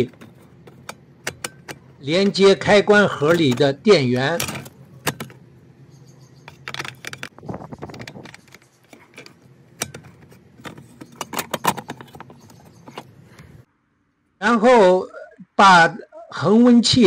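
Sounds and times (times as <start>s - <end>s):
metallic clicks and rattles: 0.0s - 2.0s, 3.2s - 5.4s, 6.4s - 13.1s
steady low hum: 0.0s - 16.3s.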